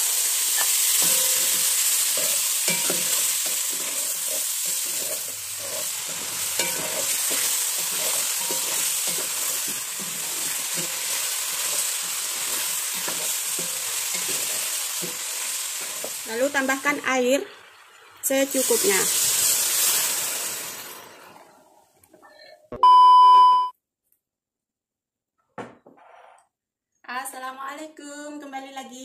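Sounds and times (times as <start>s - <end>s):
meat sizzling in oil: 0.0s - 21.4s
wooden spatula scraping pot: 1.0s - 16.2s.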